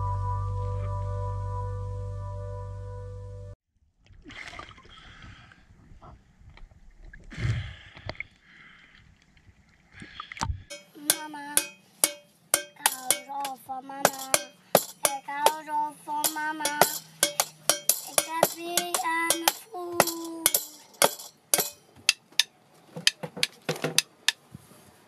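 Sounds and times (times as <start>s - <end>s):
water splashing: 4.0s - 5.3s
stick beating metal pot lid: 10.7s - 24.4s
child singing: 11.0s - 11.7s, 12.7s - 17.0s, 18.1s - 20.8s.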